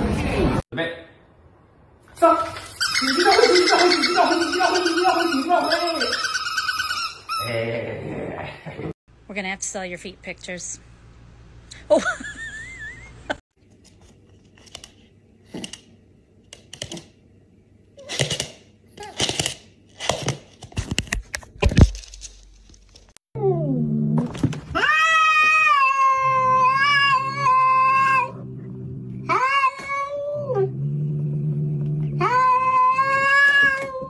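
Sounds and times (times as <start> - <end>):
cat yowling: 24.8 - 28.4, 29.3 - 30.7.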